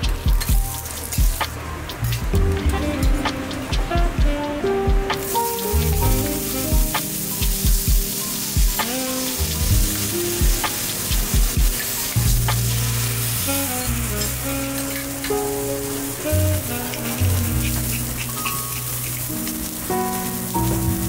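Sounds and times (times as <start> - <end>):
background music with steady beat: 0.0 - 13.8
steak sizzling on a griddle: 0.1 - 1.4, 5.2 - 21.0.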